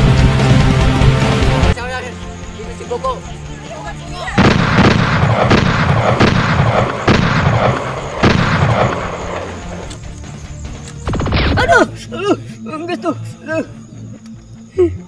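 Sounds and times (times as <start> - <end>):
explosion booms: 4.4 - 9.2.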